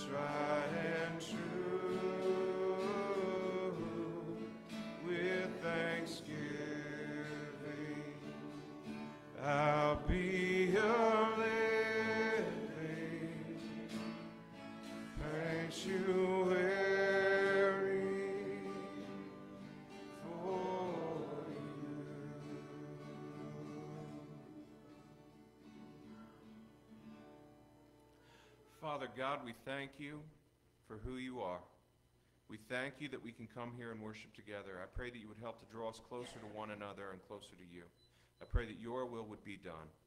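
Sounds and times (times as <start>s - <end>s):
men singing worship song: 0.0s - 14.3s, 15.0s - 24.6s
acoustic guitars strumming: 0.0s - 28.3s.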